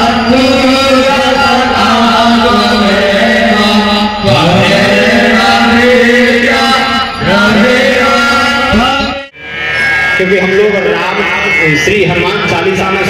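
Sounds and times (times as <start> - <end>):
person singing devotional chant: 0.0 - 9.2.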